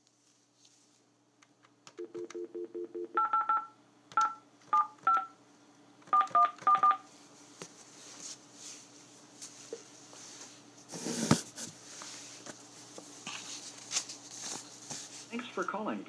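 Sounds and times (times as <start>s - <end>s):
keypad dialing beeps: 2.0s - 5.3s, 6.1s - 7.0s.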